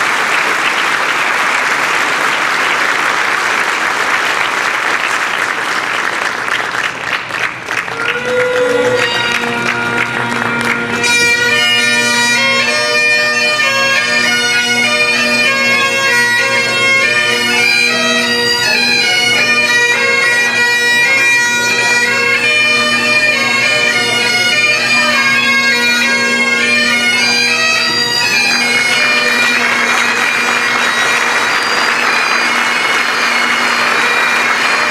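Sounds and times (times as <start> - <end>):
bagpipes playing a tune: 7.9 - 34.9.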